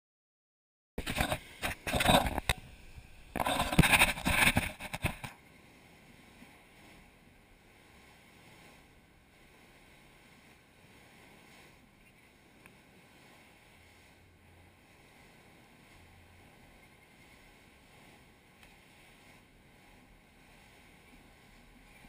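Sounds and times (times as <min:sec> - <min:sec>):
camera rustling and knocking: 0:01.0 - 0:05.4
surf: 0:01.0 - 0:22.0
faint wind hiss: 0:02.4 - 0:03.4.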